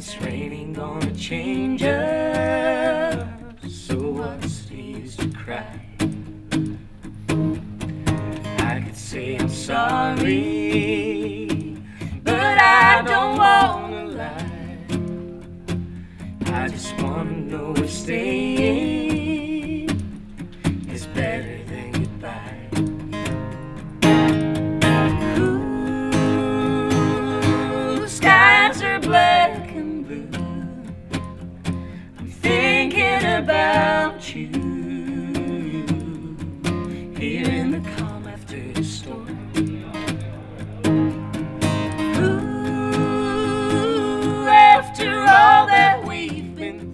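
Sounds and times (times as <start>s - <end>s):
person singing: 0.0s - 5.8s, 8.6s - 15.1s, 16.5s - 20.0s, 20.9s - 22.8s, 24.9s - 31.1s, 32.2s - 39.7s, 41.9s - 46.9s
strummed acoustic guitars: 0.0s - 46.9s
woman singing with vibrato: 12.2s - 14.9s, 25.4s - 30.8s, 32.4s - 36.3s, 42.2s - 46.9s.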